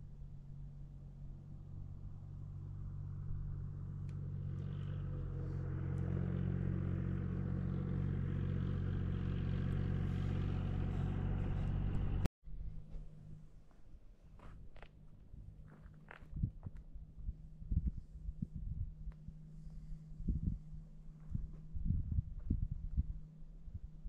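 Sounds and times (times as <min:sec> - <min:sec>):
vehicle engine humming: 0:00.0 - 0:12.3.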